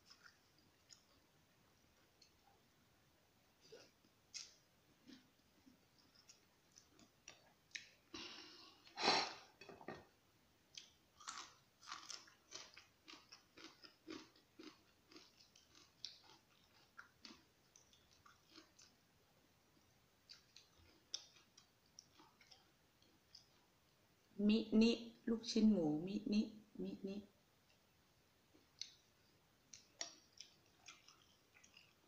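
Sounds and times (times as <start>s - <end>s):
person slurping noodles: 9.0s - 9.4s
wet chewing smacks: 29.7s - 32.0s.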